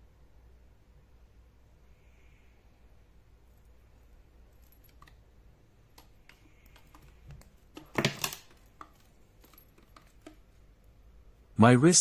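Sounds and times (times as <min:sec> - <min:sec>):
watch rattling: 0:04.4 - 0:10.8
metal watch band clinking: 0:04.5 - 0:05.3.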